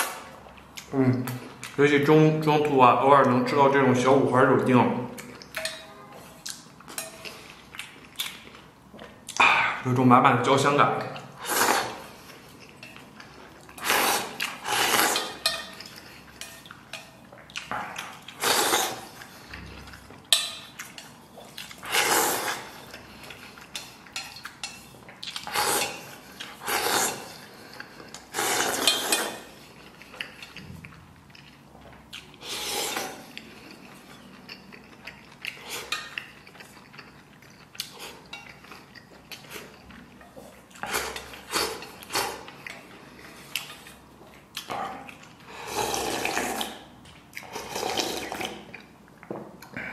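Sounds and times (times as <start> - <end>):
person slurping soup: 11.4 - 12.2, 13.8 - 15.4, 18.3 - 19.6, 21.8 - 22.9, 25.4 - 27.6, 28.2 - 29.5, 32.4 - 33.3, 45.5 - 48.7.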